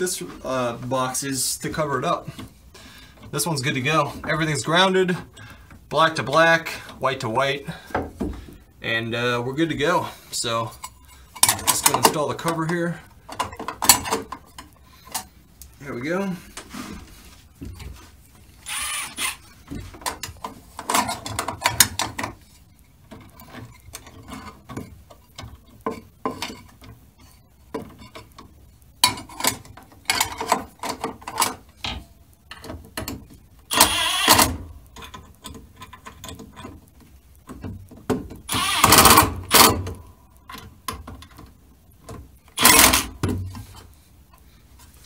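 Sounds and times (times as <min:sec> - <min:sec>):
impact driver driving screws: 0:18.6 - 0:19.5, 0:33.7 - 0:34.6, 0:38.5 - 0:39.9, 0:42.6 - 0:43.2.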